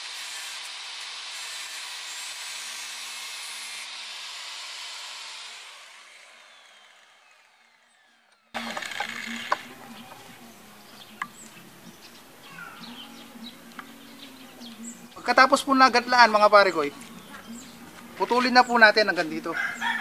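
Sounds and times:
angle grinder grinding metal: 0:00.0 - 0:20.0
grinder disc spinning down: 0:04.7 - 0:11.5.

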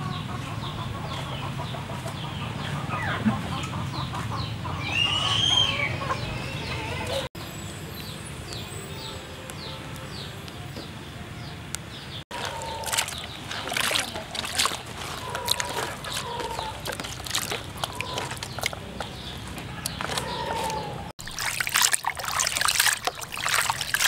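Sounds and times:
chickens clucking and peeping: 0:00.0 - 0:07.3, 0:12.1 - 0:21.1.

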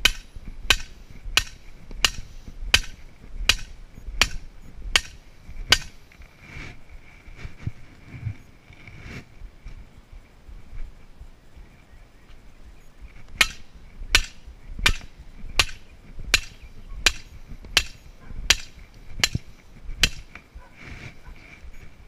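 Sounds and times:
sledgehammer striking metal post: 0:00.0 - 0:06.0, 0:13.4 - 0:20.3.

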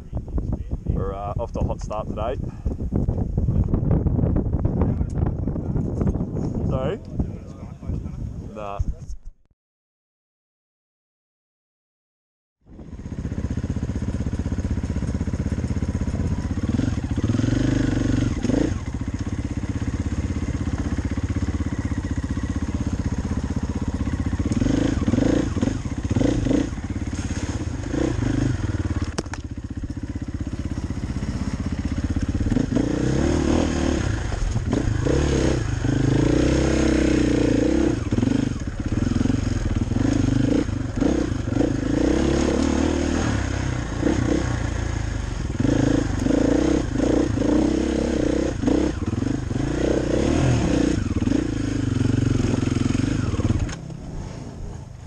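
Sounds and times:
dirt bike engine revving: 0:12.7 - 0:54.8.

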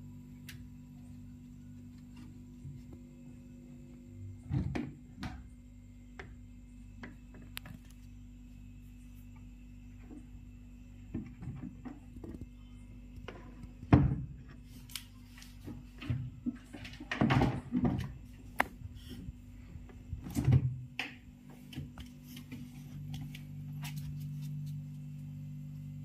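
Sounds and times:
refrigerator humming: 0:00.0 - 0:26.0
refrigerator door thumps and knocks: 0:13.9 - 0:14.5, 0:17.0 - 0:18.2.

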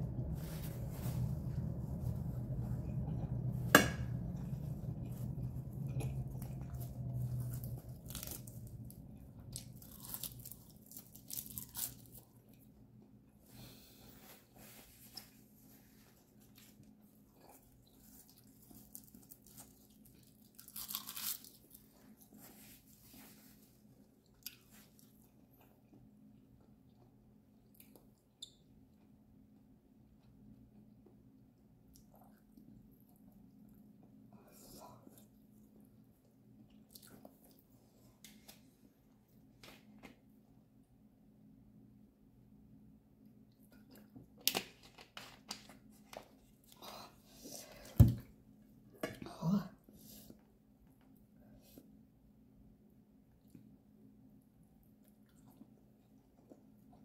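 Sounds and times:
person chewing food: 0:02.4 - 0:13.4, 0:16.5 - 0:22.9, 0:23.8 - 0:29.2, 0:30.1 - 0:38.6, 0:54.6 - 0:57.0
crisp crunching: 0:05.2 - 0:12.6, 0:18.0 - 0:22.9.

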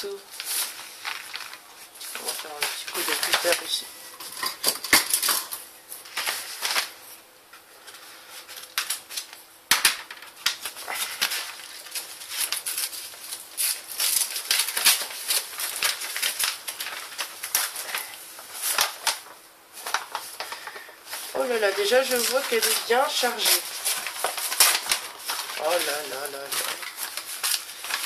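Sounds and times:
paper and tape crackling: 0:00.0 - 0:28.0
knife cutting paper envelope: 0:10.5 - 0:28.0.

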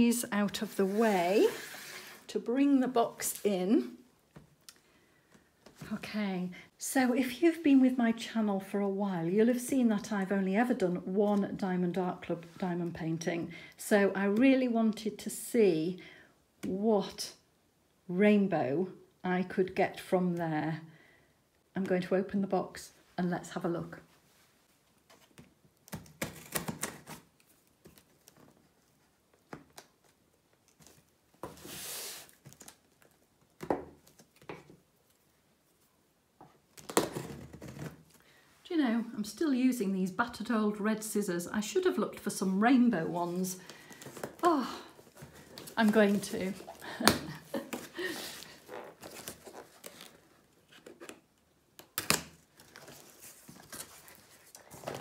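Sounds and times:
cardboard rustling and tearing: 0:25.9 - 0:28.6, 0:43.8 - 0:51.1.

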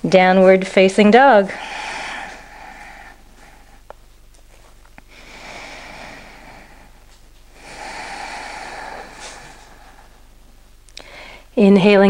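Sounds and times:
person breathing deeply: 0:01.4 - 0:03.9, 0:05.1 - 0:10.4, 0:11.0 - 0:11.6.

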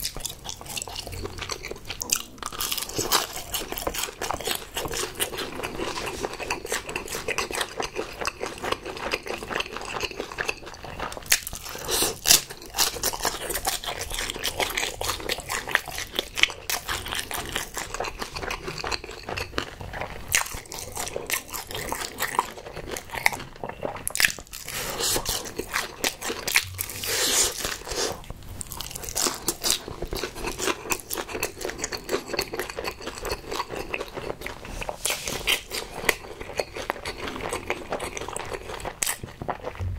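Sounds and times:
person chewing chicken: 0:00.0 - 0:39.9.

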